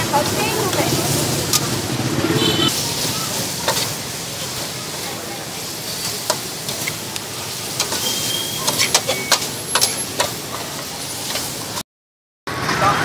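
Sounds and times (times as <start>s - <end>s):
food sizzling: 0.0s - 11.8s
metal spatula scraping wok: 2.4s - 11.8s.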